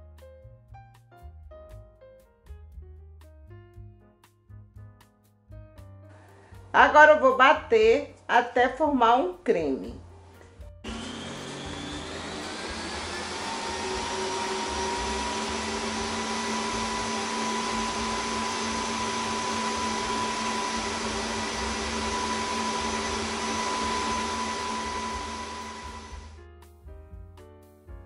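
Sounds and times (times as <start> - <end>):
stand mixer motor whining: 10.9 - 26.4.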